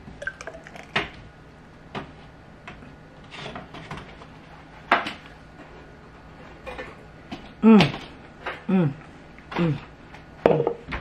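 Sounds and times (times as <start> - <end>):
faint steady hum: 0.0 - 11.0
dishes knocking and clattering: 10.4 - 11.0.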